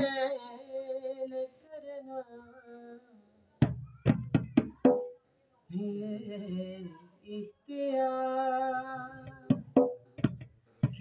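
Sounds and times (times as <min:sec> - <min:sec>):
man singing devotional verse: 0:00.0 - 0:03.4, 0:05.7 - 0:09.8
sharp percussive strikes: 0:09.5 - 0:11.0.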